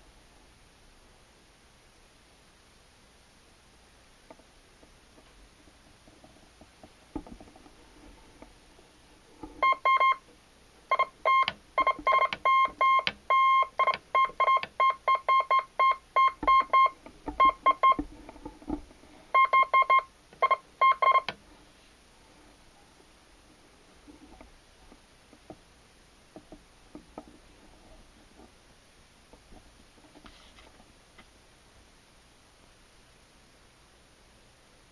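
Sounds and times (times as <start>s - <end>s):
morse code beeps: 9.6s - 10.2s, 10.9s - 18.0s, 19.3s - 21.3s.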